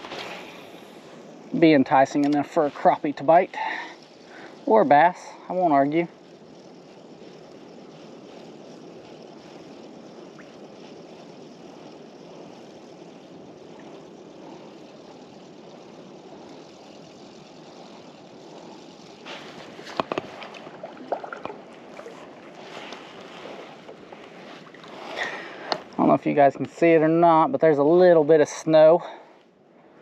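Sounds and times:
water washing against kayak hull: 14.4 - 26.1.

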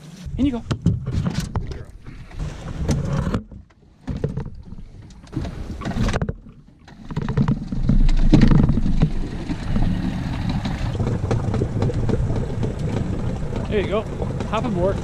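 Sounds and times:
outboard motor running: 1.5 - 15.0.

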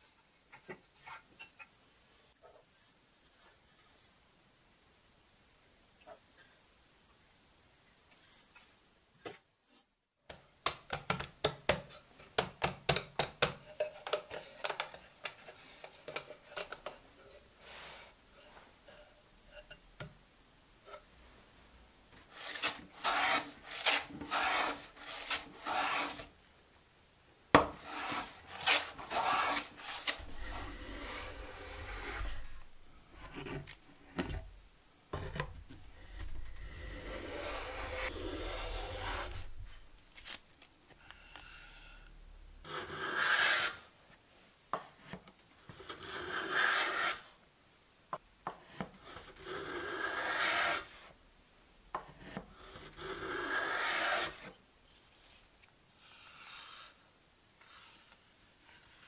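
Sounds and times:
hand plane shaving wood: 22.3 - 26.3, 27.8 - 32.6, 36.6 - 39.5, 42.8 - 43.8, 46.1 - 47.2, 49.4 - 51.0, 52.9 - 54.5.

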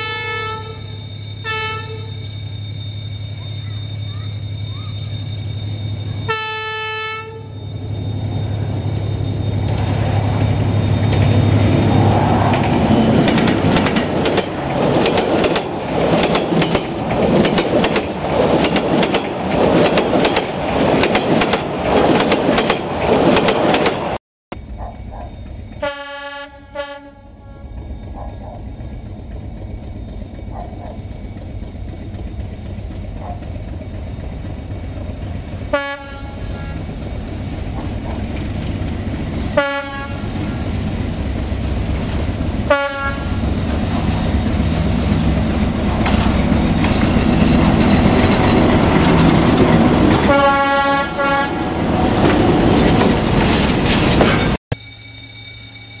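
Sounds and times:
train horn blasts: 0.0 - 2.2, 6.3 - 7.6, 25.8 - 27.8, 35.7 - 37.0, 39.5 - 40.6, 42.6 - 43.4, 50.1 - 52.0
diesel locomotive engine rumble: 0.0 - 54.6
wagons rolling over rails: 9.6 - 24.2, 43.4 - 50.8.

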